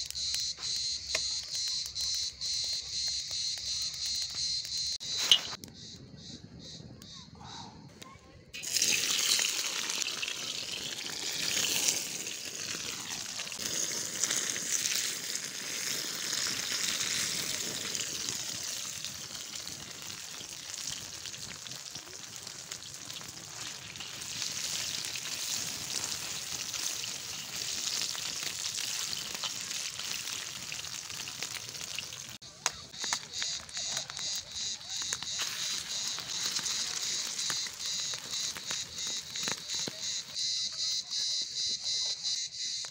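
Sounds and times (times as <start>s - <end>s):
sausages sizzling in a pan: 0.0s - 5.6s, 8.6s - 42.9s
insect chirping: 0.0s - 6.0s, 32.8s - 42.9s.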